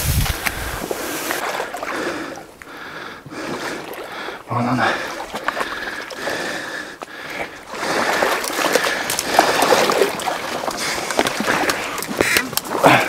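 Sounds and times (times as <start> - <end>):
reeds rustling and snapping: 0.0 - 1.5, 8.5 - 13.0
wading splashes in water: 0.1 - 13.0.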